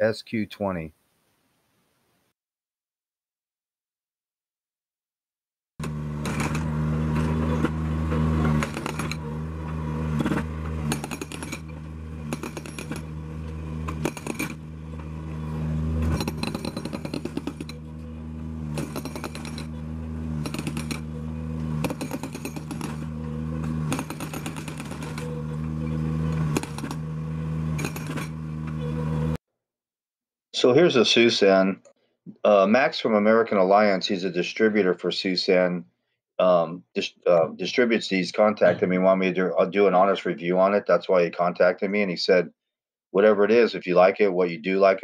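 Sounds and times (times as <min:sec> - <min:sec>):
hydraulic breaker hammering concrete: 0:05.8 - 0:29.2
skid steer engine running: 0:05.8 - 0:29.4.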